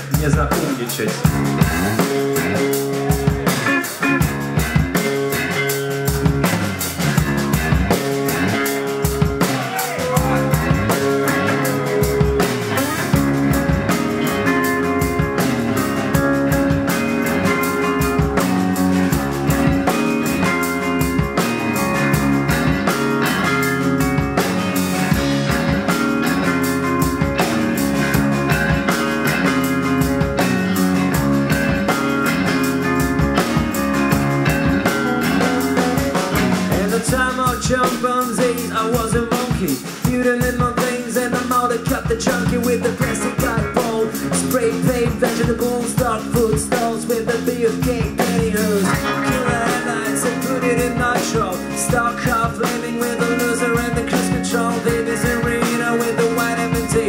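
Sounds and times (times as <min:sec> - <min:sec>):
bass guitar: 0:00.0 - 0:57.0
drum kit: 0:00.0 - 0:57.0
electric guitars: 0:00.0 - 0:57.0.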